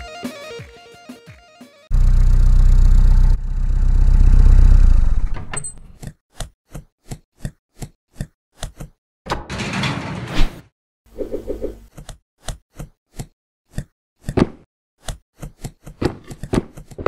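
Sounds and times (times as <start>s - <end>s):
cartoon van engine running: 1.9s - 5.5s
cartoon footsteps: 11.2s - 17.0s.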